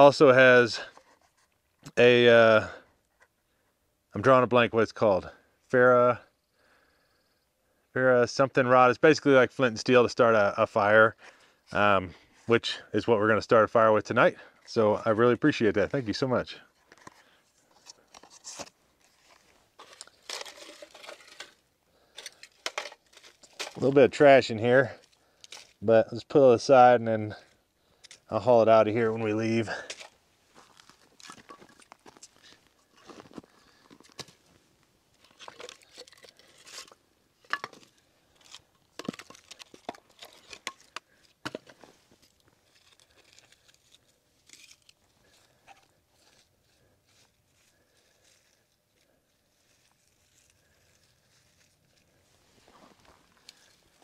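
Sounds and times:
rustling and crinkling debris: 16.7 - 24.1, 24.8 - 25.8, 28.9 - 54.0
wooden pieces knocking and clattering: 19.8 - 21.6, 22.2 - 23.9, 35.2 - 43.7.

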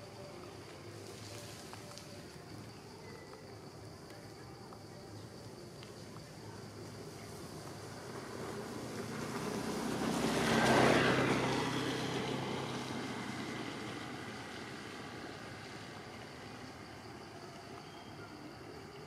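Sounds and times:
motor vehicle passing by: 7.7 - 16.8.

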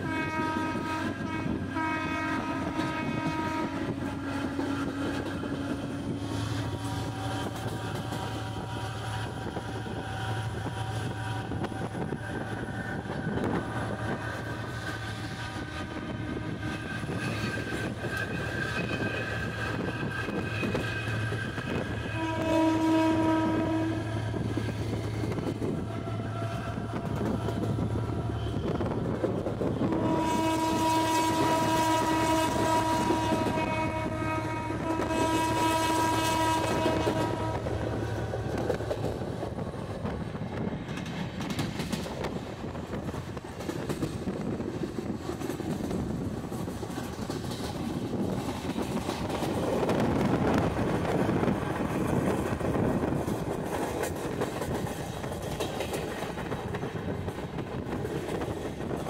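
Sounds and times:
train air horn blast: 0.0 - 12.1, 13.0 - 24.6, 25.3 - 38.5
locomotive engine droning: 0.0 - 59.0.

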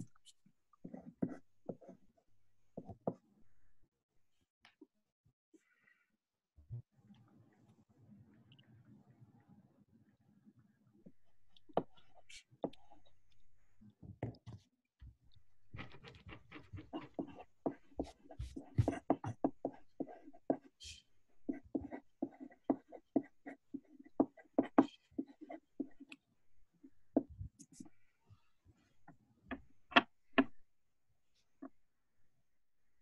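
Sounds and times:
pen scratching on paper: 0.8 - 2.0, 15.8 - 26.2.

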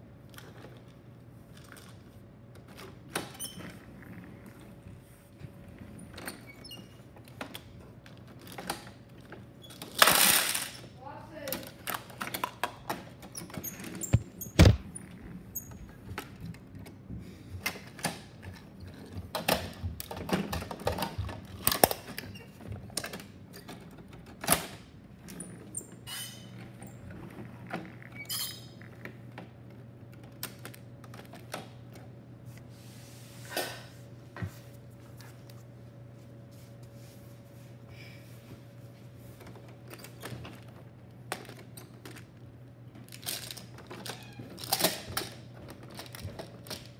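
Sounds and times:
heavy thump: 14.2 - 14.9.

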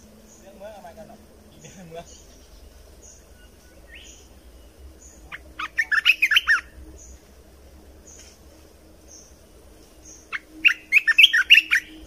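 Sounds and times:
bird chirping: 0.0 - 12.0.

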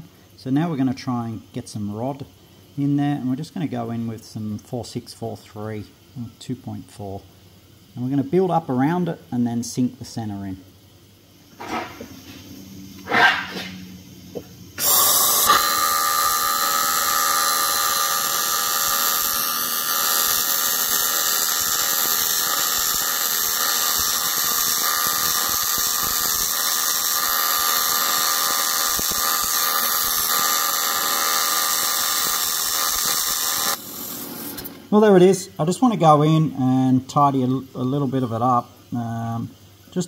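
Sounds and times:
welding arc buzzing: 11.4 - 35.1.

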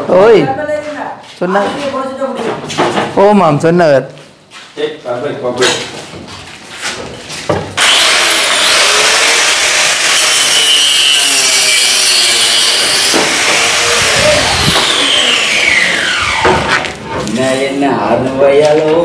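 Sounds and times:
power tool cutting wood: 7.8 - 17.0
knocks: 16.4 - 16.9.

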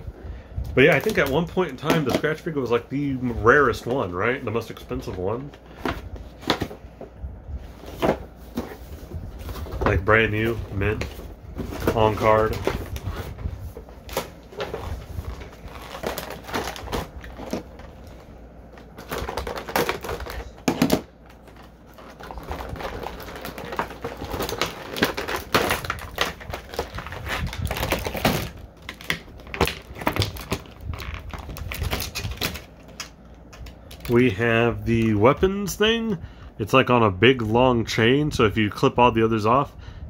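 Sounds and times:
plastic packaging crinkling and clicking: 0.7 - 6.9, 7.9 - 35.4.

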